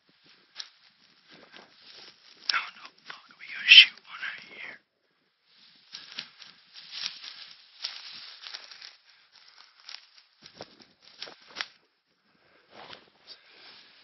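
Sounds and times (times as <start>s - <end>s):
footsteps crunching through dry grass: 0.0s - 4.6s, 5.5s - 11.8s.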